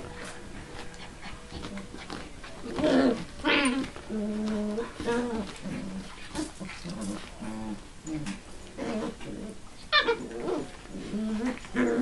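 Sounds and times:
puppies growling and whining: 0:00.0 - 0:12.0
high puppy yelp: 0:09.9 - 0:10.4.

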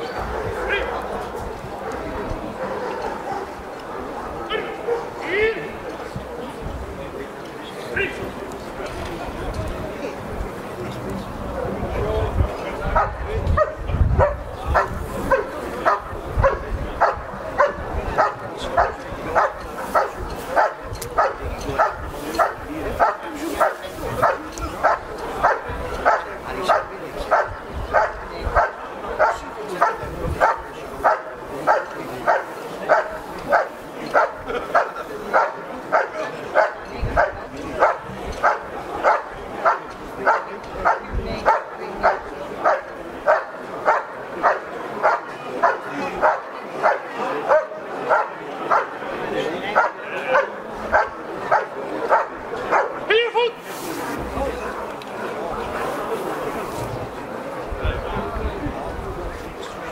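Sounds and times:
dog barking: 0:01.8 - 0:03.6, 0:12.9 - 0:48.9, 0:49.8 - 0:53.0.

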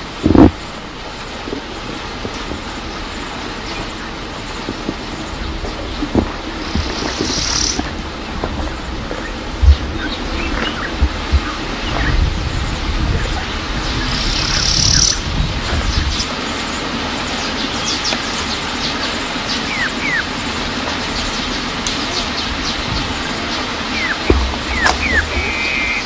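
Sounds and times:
low rumble: 0:00.0 - 0:16.3, 0:24.0 - 0:26.0
birds chirping: 0:00.0 - 0:26.0
steady hiss: 0:00.0 - 0:26.0.

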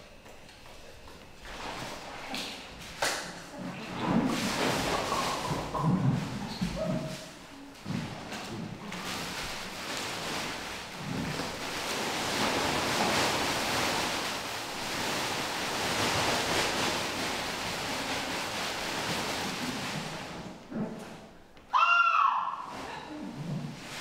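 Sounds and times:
dense rushing noise like surf: 0:09.2 - 0:20.6.

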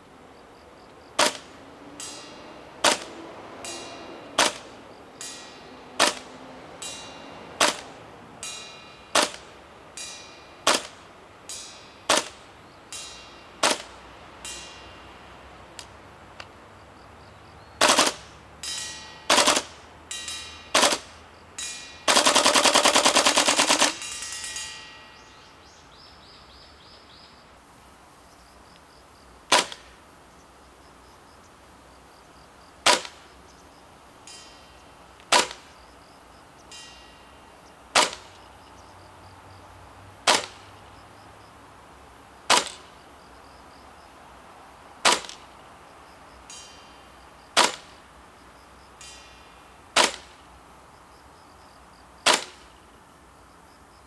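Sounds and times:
airsoft rifle firing: 0:01.2 - 0:01.5, 0:02.8 - 0:03.2, 0:04.4 - 0:04.7, 0:06.0 - 0:06.3, 0:07.6 - 0:07.9, 0:09.2 - 0:09.5, 0:10.6 - 0:11.0, 0:12.1 - 0:12.4, 0:13.6 - 0:14.0, 0:17.8 - 0:18.2, 0:19.3 - 0:19.8, 0:20.7 - 0:21.1, 0:22.1 - 0:24.1, 0:29.5 - 0:29.9, 0:32.8 - 0:33.2, 0:35.3 - 0:35.7, 0:37.9 - 0:38.3, 0:40.2 - 0:40.7, 0:42.5 - 0:42.9, 0:45.0 - 0:45.4, 0:47.6 - 0:47.9, 0:50.0 - 0:50.4, 0:52.2 - 0:52.6
metallic ping of pellets on steel: 0:18.6 - 0:19.4, 0:20.0 - 0:22.4.

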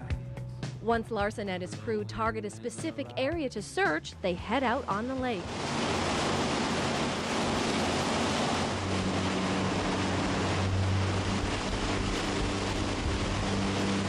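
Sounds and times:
motorboat engine hum: 0:01.4 - 0:14.0
water rushing along boat hull: 0:03.8 - 0:14.0
wind: 0:05.4 - 0:14.0.

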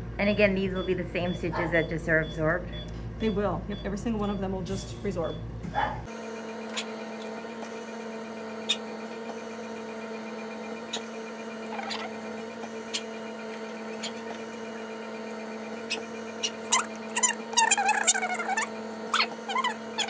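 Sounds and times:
electrical hum: 0:06.1 - 0:20.0.

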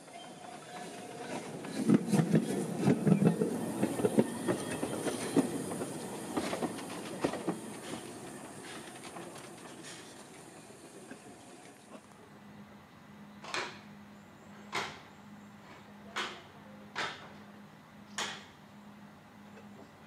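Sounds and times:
steam locomotive wheels clanking: 0:00.0 - 0:12.0.

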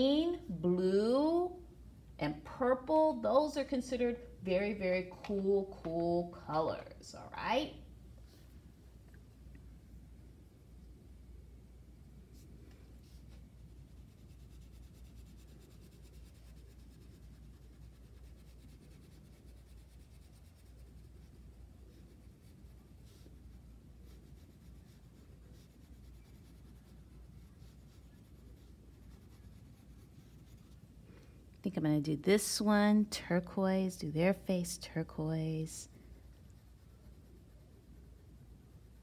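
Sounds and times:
low room hum: 0:00.0 - 0:39.0
crayon scratching on paper: 0:13.0 - 0:30.9, 0:35.2 - 0:39.0.

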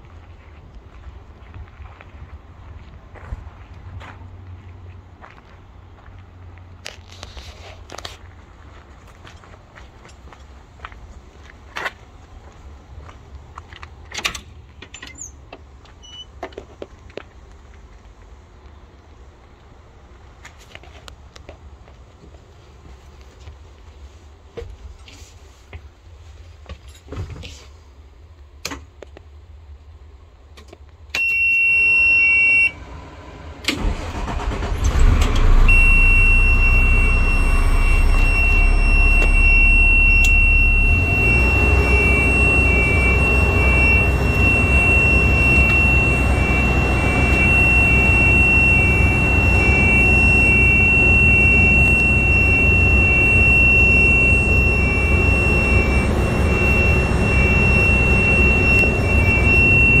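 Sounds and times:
diesel engine cranking and idling: 0:32.6 - 1:00.0
high warning tone: 0:33.8 - 1:00.0
pulsing beep: 0:34.2 - 1:00.0.

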